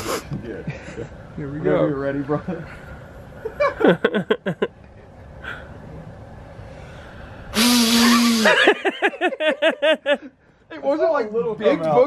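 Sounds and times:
short sniff: 0.0 - 0.3, 6.7 - 8.6
man blowing air through nose: 0.0 - 0.4, 6.8 - 8.8.

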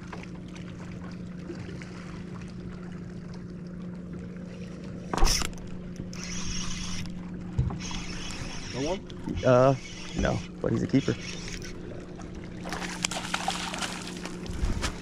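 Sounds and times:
electric motor humming: 5.1 - 13.2.

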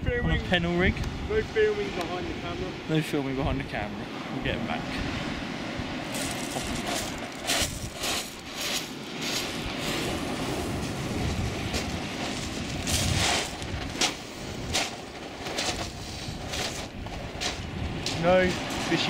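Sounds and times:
wind buffeting microphone: 0.0 - 19.0
footsteps crunching on pebbles: 6.1 - 17.8.

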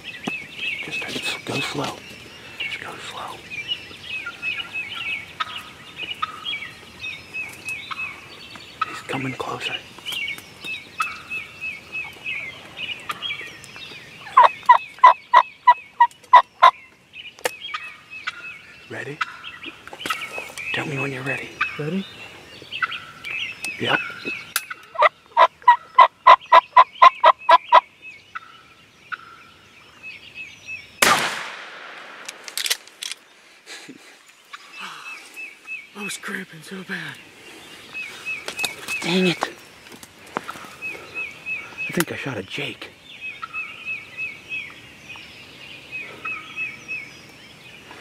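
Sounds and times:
songbirds singing: 0.0 - 48.0
turkey yelps: 14.2 - 16.7, 24.7 - 27.8
shotgun blast: 31.0 - 32.5
sharp clicks: 31.0 - 33.3
faint bird chirps: 33.2 - 48.0.

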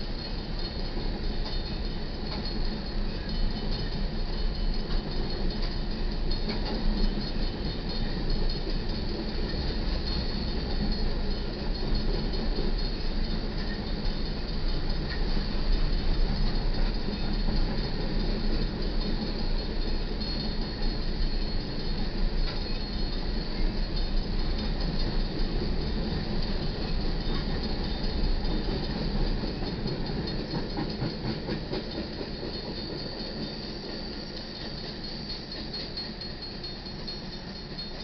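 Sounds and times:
freight train wheels rumbling: 0.0 - 38.0.

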